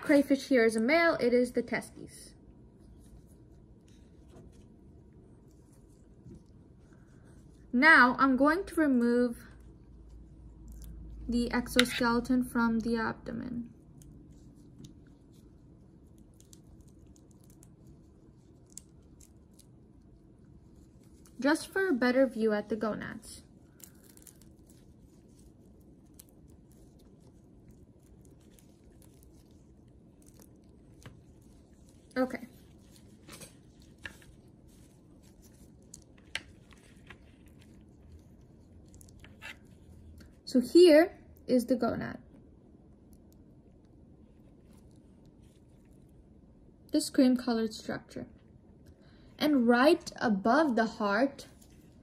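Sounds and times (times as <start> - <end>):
crayfish shell cracking and peeling: 13.8 - 20.3, 23.6 - 40.4.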